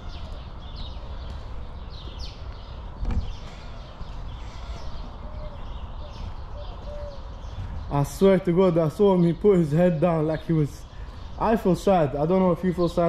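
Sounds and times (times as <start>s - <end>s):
small birds chirping: 0.0s - 13.0s
thump: 3.0s - 3.4s.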